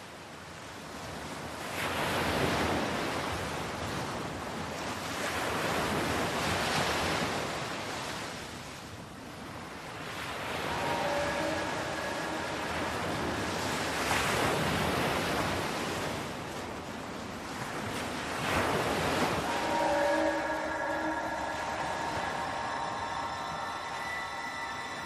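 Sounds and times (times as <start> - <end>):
faint steady tones: 9.8 - 16.2, 18.3 - 25.0
rushing noise: 10.3 - 15.6, 18.4 - 25.0.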